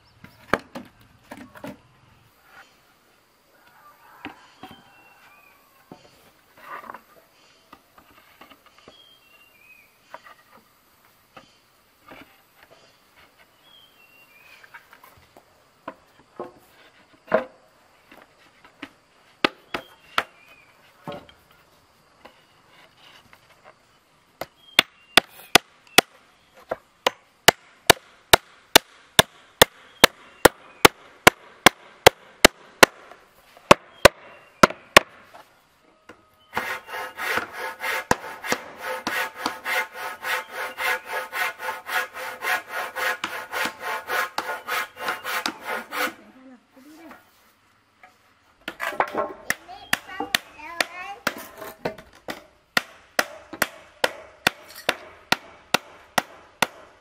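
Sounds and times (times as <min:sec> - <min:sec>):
handsaw cutting wood: 0:36.6 - 0:46.2.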